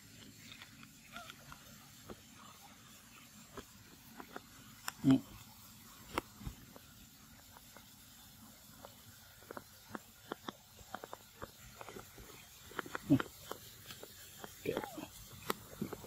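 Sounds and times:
light clicks and crackles: 0:00.0 - 0:16.0.

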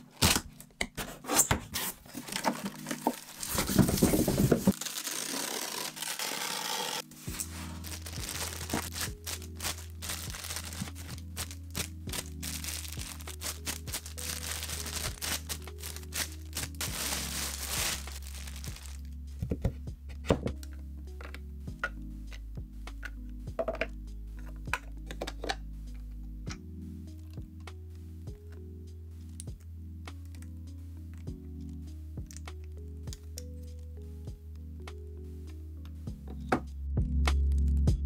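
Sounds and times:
styrofoam and plastic being handled: 0:00.0 - 0:19.1
music with bass line: 0:07.2 - 0:38.0.

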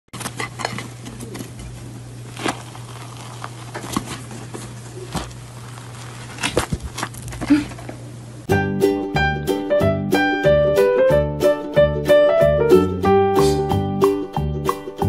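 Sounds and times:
dry material crackling and snapping: 0:00.2 - 0:08.0
steady low hum: 0:00.3 - 0:08.5.

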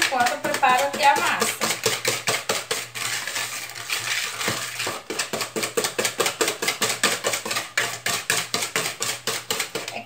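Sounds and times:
whisk clicking against plastic bowl: 0:00.0 - 0:03.4, 0:04.0 - 0:10.0.

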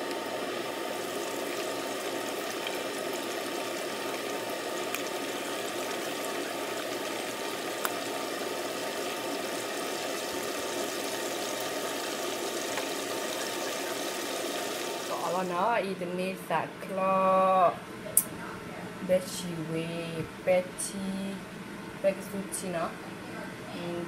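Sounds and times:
curry bubbling in pot: 0:00.1 - 0:15.2.

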